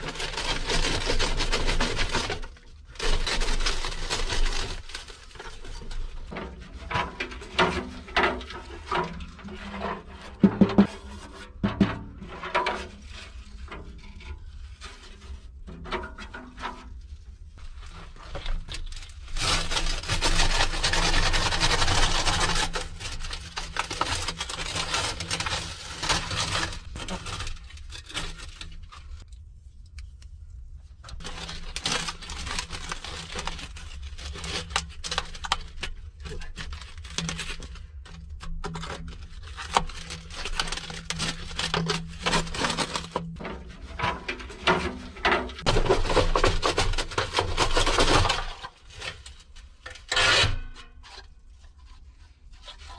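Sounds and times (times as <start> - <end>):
hands scraping dried clay: 31.1 - 52.9.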